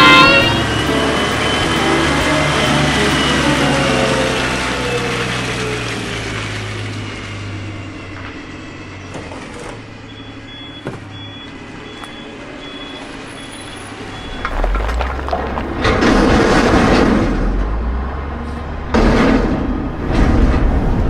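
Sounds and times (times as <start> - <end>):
reversing alarm beeping: 0.0 - 5.0, 10.0 - 14.8
truck engine running: 0.0 - 21.0
low rumble: 14.0 - 19.0.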